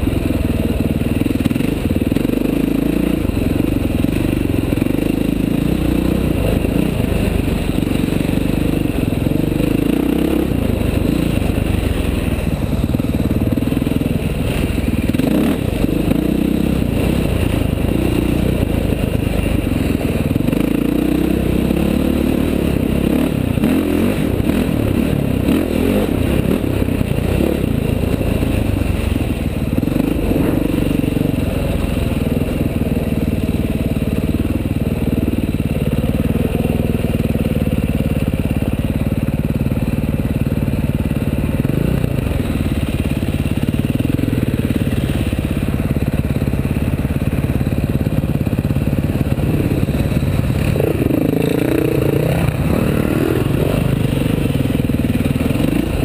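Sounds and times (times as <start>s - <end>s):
dirt bike engine running: 0.0s - 56.0s
second dirt bike revving: 1.2s - 32.7s, 47.8s - 56.0s.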